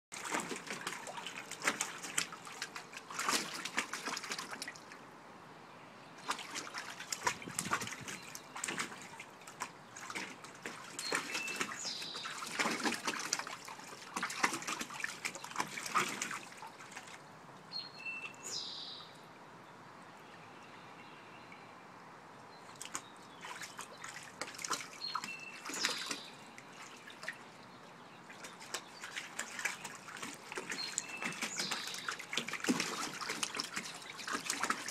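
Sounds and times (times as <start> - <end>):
puppy splashing in water: 0.1 - 5.0, 6.2 - 17.3, 22.6 - 27.5, 28.2 - 34.9.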